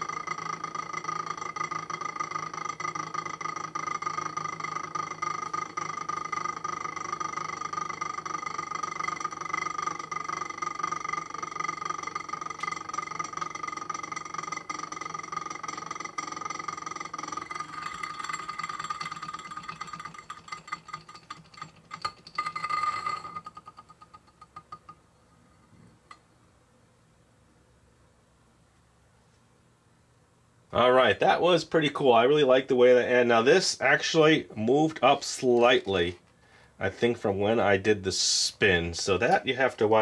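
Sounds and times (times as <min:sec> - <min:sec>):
spinning top clattering: 0:00.0 - 0:25.0
spinning top rattling: 0:00.0 - 0:25.1
spinning top whirring: 0:00.0 - 0:25.1.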